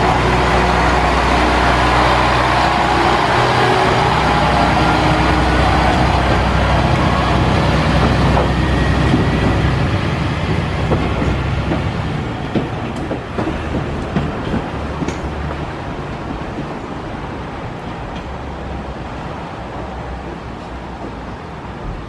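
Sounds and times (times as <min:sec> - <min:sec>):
diesel railcar engine: 0:00.0 - 0:22.0
train wheels rolling on rails: 0:00.0 - 0:22.0
wheels clicking over rail joints: 0:04.0 - 0:18.9.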